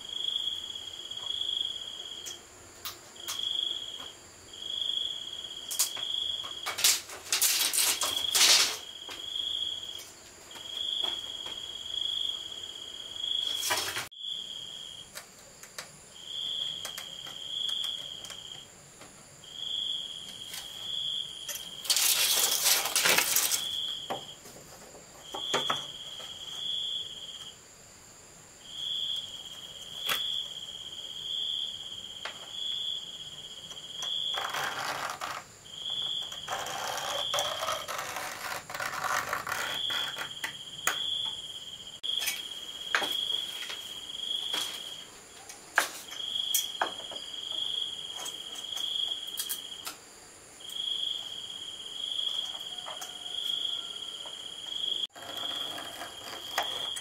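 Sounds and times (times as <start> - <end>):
insects trilling: 0.0 - 57.0.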